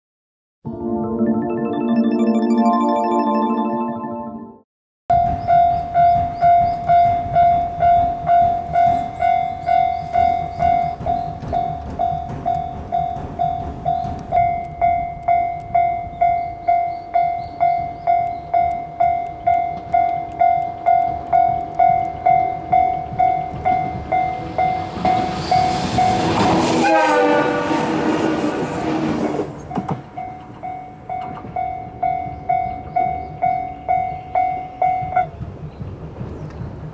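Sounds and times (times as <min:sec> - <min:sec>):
electric train rushing past: 0:21.1 - 0:33.4.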